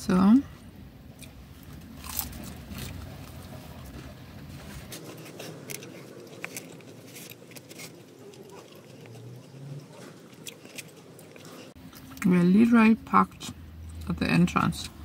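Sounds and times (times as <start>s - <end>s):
person chewing fried chicken: 1.1s - 12.2s.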